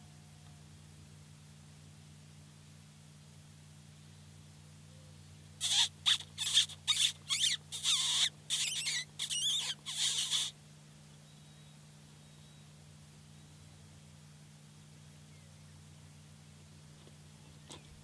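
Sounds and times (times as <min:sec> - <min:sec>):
high-pitched mouth squeaks: 0:05.6 - 0:10.6.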